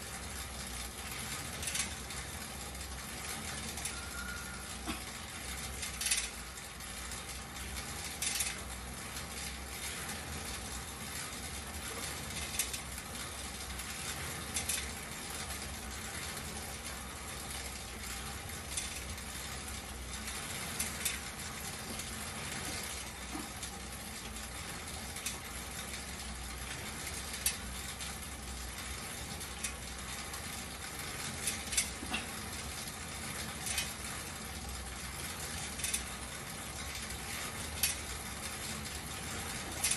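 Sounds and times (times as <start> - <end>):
exercise bike fan whooshing: 0.0 - 39.9.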